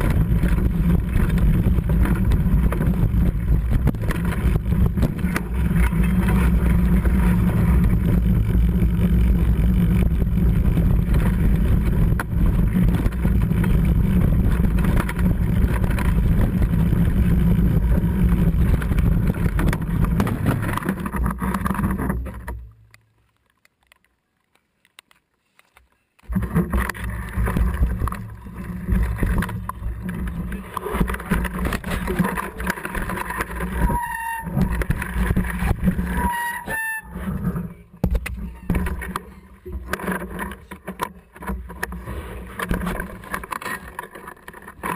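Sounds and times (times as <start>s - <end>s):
wind on microphone: 0.0s - 22.0s
bike tyres rumbling and frame rattle: 0.0s - 44.9s.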